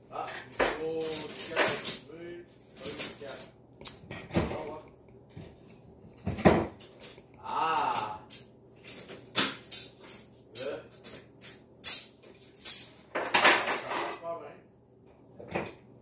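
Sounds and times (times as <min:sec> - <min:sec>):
wavering voice: 0:07.4 - 0:08.3.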